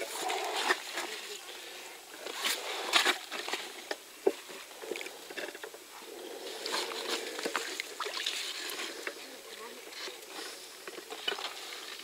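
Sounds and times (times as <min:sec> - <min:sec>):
shallow water splashing and sloshing: 0:06.4 - 0:12.0.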